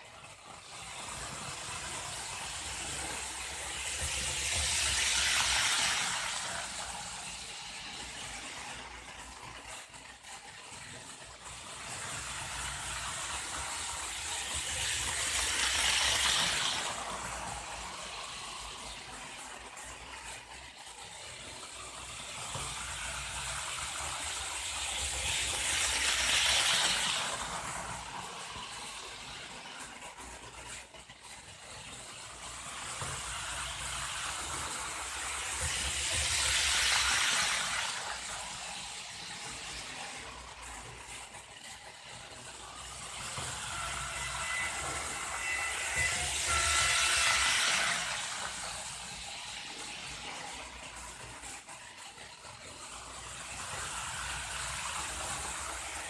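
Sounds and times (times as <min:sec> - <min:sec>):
model train rolling hiss: 0:00.0 - 0:56.0
thin whine: 0:43.3 - 0:50.7.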